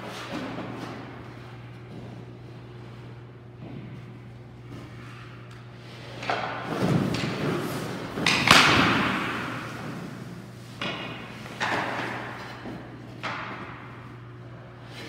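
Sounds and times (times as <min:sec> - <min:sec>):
steady low hum: 0:00.0 - 0:15.0
hockey pucks striking with cracks: 0:06.1 - 0:14.1.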